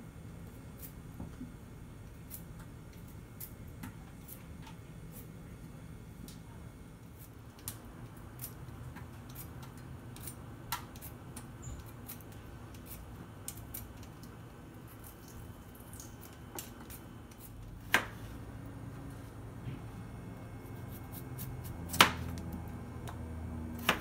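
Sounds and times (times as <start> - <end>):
low steady hum: 0.0 - 24.0
blade scraping potato skin: 20.6 - 22.4.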